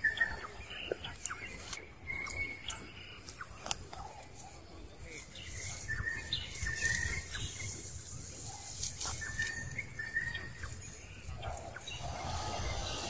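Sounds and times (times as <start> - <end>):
rustling in dry leaf litter: 0.4 - 13.0
high steady chirps: 11.5 - 13.0.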